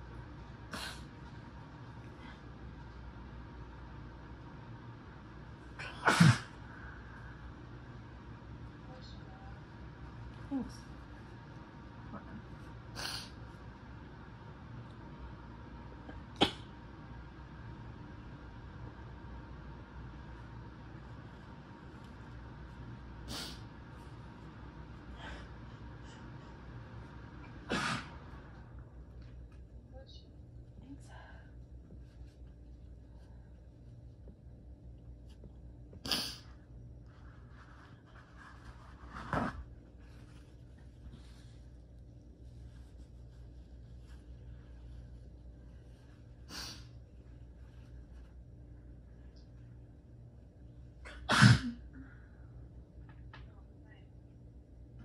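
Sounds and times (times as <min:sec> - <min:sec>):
steady low hum: 0:00.0 - 0:55.0
woman sneezing: 0:05.8 - 0:06.6, 0:51.1 - 0:51.9.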